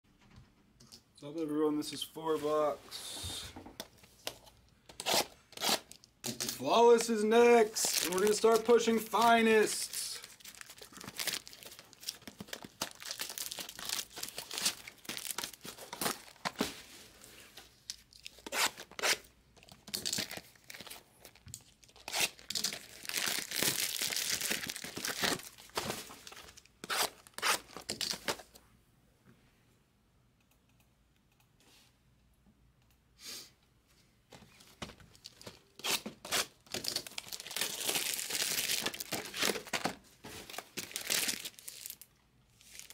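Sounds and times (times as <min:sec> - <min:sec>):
packaging tearing and crinkling: 0:07.6 - 0:16.7, 0:17.9 - 0:28.5, 0:35.2 - 0:42.9.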